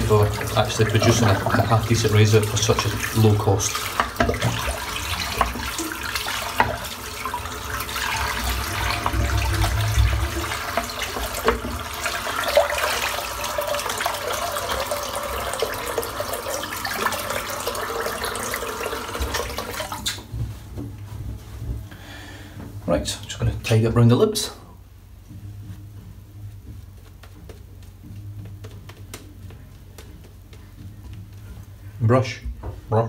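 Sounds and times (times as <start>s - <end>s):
tap running into a sink: 0.0s - 21.9s.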